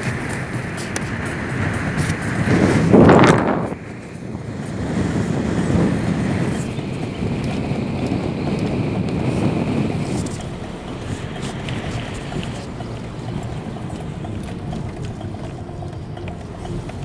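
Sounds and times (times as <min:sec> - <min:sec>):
light ticks: 0:00.0 - 0:02.3, 0:06.6 - 0:17.0
car road and engine noise: 0:00.0 - 0:17.0.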